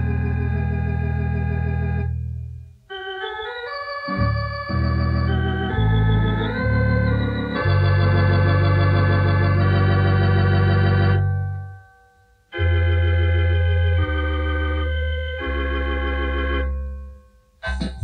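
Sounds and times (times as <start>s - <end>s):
deep pedal bass notes: 0.0s - 2.7s, 17.6s - 18.0s
electronic organ chords: 0.0s - 18.0s.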